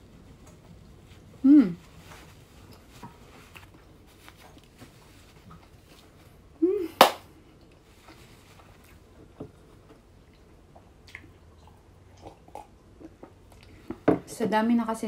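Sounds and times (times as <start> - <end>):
small handling sounds: 0.4 - 6.4
person humming: 1.4 - 1.8, 6.6 - 7.0.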